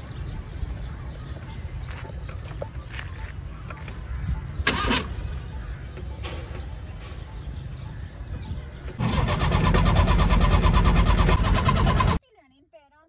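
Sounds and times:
starter motor cranking engine: 4.6 - 5.2, 8.9 - 12.2.

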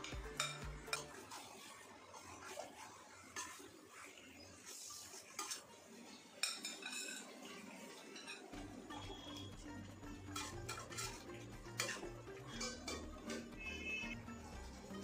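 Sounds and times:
spoon clinking on pan: 0.1 - 1.1.

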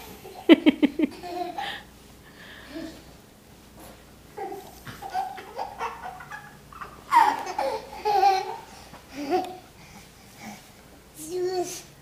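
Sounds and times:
toddler laughing and babbling: 4.4 - 9.7, 11.2 - 12.0.

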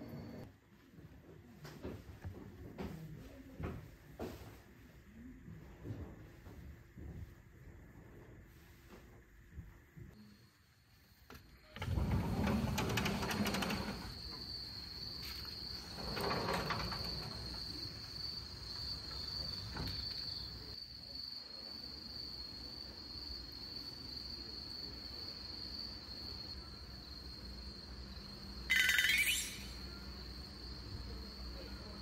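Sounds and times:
high-pitched insect trill: 13.5 - 32.0.

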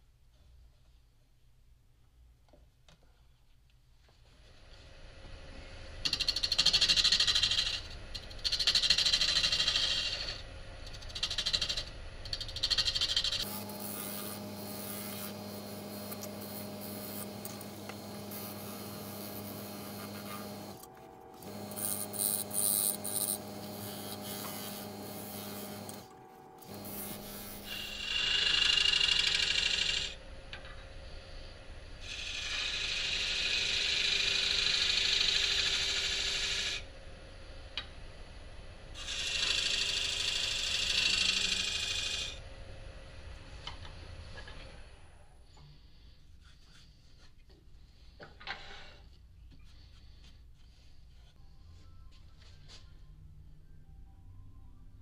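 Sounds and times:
lathe motor hum: 13.2 - 30.0
tool cutting wood hissing: 13.4 - 30.1.

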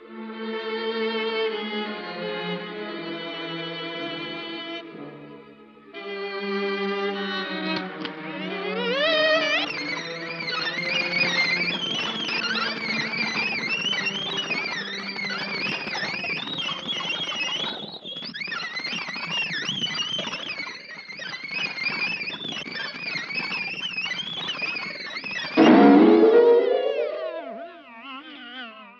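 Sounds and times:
warbling theremin-like tones: 25.6 - 28.1.

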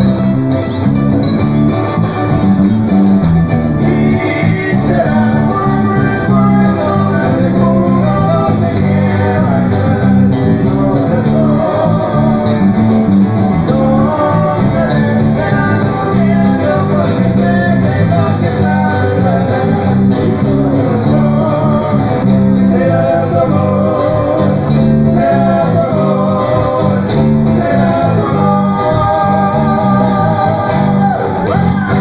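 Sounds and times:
amplified guitars: 0.0 - 32.0
bass line: 0.0 - 32.0
person singing: 3.8 - 32.0.

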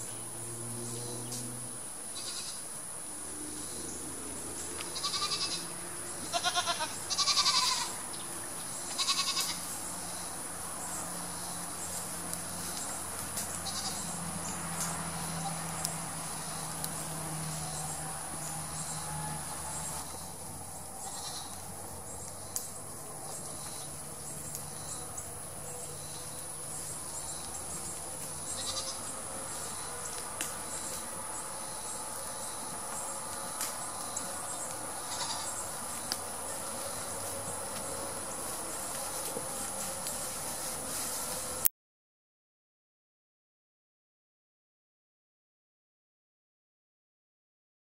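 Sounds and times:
high insect drone: 0.0 - 41.7
goat bleating: 2.2 - 2.6, 4.8 - 8.0, 8.9 - 9.8, 13.5 - 14.2, 21.0 - 22.0, 28.3 - 29.2, 34.9 - 35.6.

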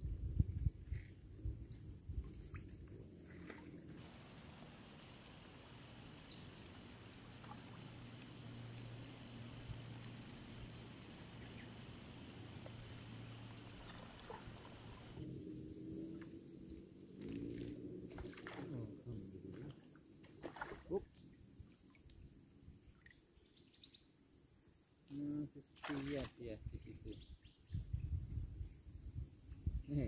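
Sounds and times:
high-pitched insect buzz: 4.0 - 15.2.

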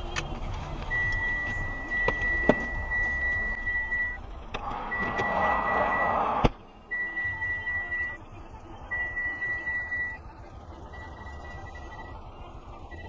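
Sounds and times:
road noise: 0.0 - 13.0
high electronic beep: 0.9 - 8.2, 8.9 - 10.2, 10.8 - 13.0
rush of noise: 4.6 - 6.6.

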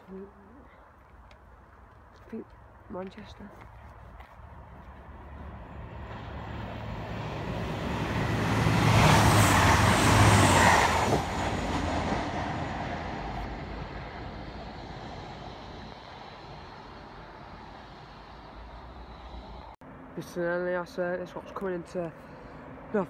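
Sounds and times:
passenger train passing: 5.1 - 19.8.

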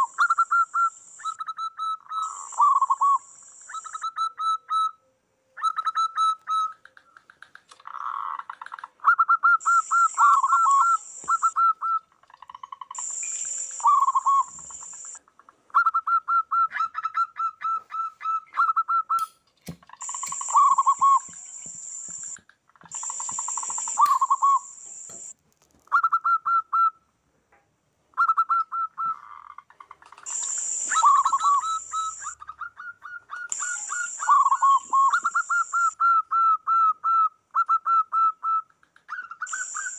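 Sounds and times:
doves cooing: 5.7 - 15.2, 20.0 - 21.5, 28.3 - 36.1
bursts of high hiss: 30.3 - 32.4.

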